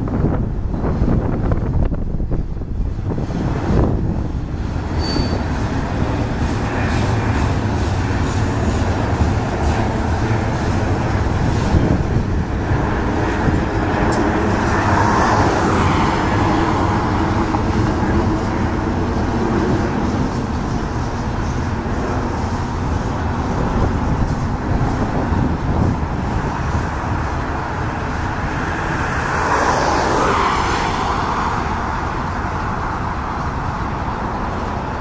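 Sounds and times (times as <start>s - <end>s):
freight train rumbling past: 0.0s - 35.0s.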